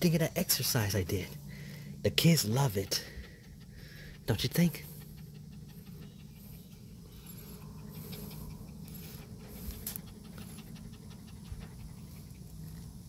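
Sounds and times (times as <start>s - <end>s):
dog panting: 0.5s - 13.0s.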